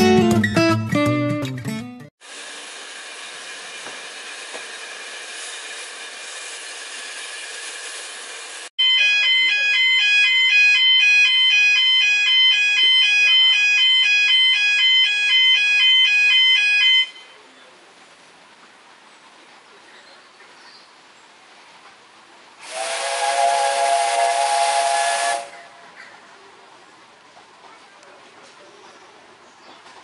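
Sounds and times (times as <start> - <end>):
level-crossing alarm warbling: 8.8 - 17.3.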